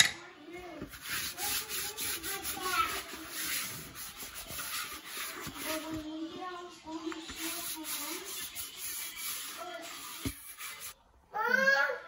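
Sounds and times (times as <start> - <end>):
dough rasping on countertop: 0.8 - 6.0, 7.2 - 11.0.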